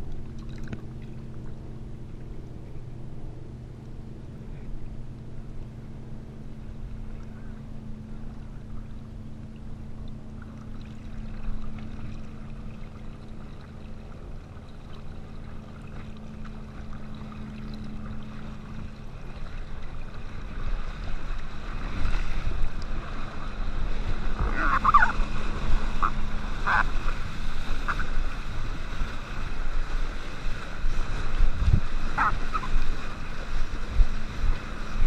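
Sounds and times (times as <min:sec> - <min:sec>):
water rushing and splashing: 0:00.0 - 0:35.0
wind buffeting microphone: 0:18.5 - 0:35.0.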